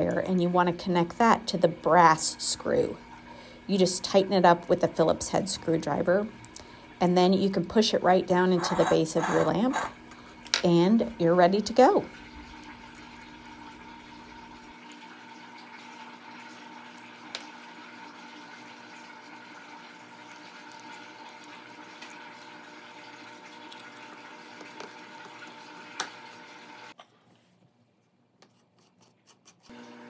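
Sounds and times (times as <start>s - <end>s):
steady background hum: 0.0s - 14.8s.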